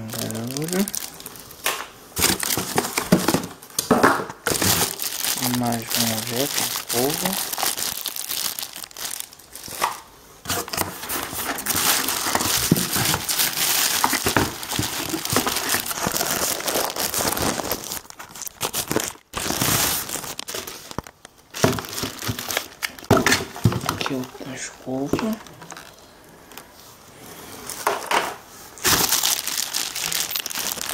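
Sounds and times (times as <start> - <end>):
plastic bags crinkling: 0.0 - 26.7, 28.8 - 30.9.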